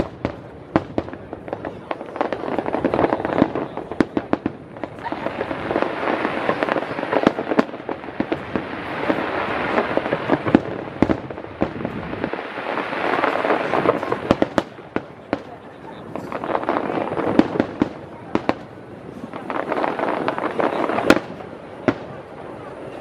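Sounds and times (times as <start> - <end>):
firework bangs and pops: 0.0 - 23.0
firework crackling hiss: 0.0 - 23.0.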